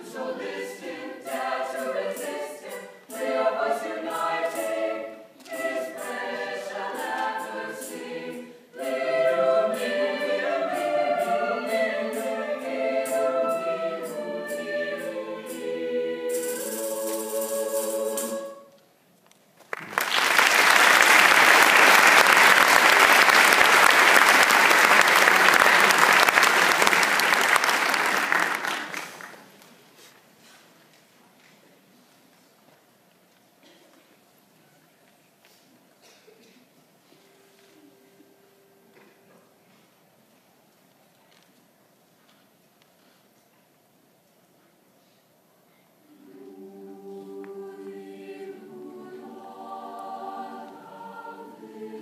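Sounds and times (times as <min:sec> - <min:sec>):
choir singing in harmony: 0:00.0 - 0:18.7, 0:46.0 - 0:52.0
audience applause: 0:19.7 - 0:29.6.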